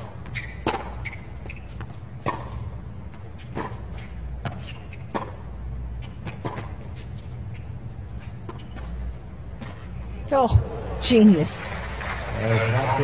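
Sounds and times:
tennis ball struck by rackets: 0.0 - 2.7, 3.4 - 5.5, 6.1 - 6.9
tennis ball bouncing: 0.0 - 10.8
low stadium rumble: 0.0 - 13.0.

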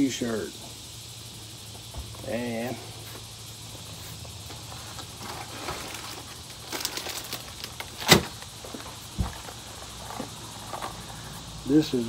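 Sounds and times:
dull thump: 9.2 - 9.4.

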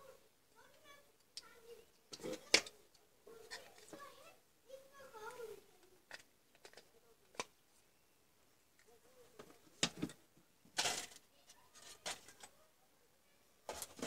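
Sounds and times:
plastic and metal scraping rustle: 3.4 - 4.2, 9.2 - 12.6, 13.7 - 14.0.

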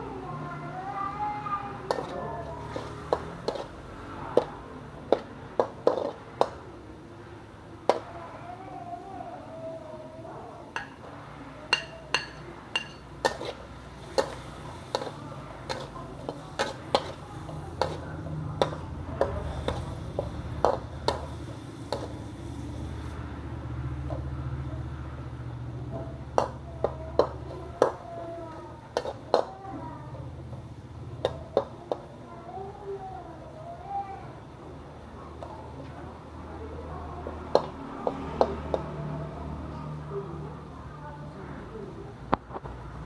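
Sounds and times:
metal spatula scraping wok: 1.9 - 3.8, 5.8 - 6.2, 11.7 - 23.2.

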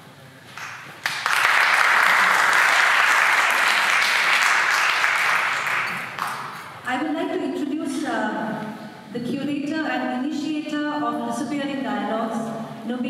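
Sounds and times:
audience applauding: 0.5 - 6.8.

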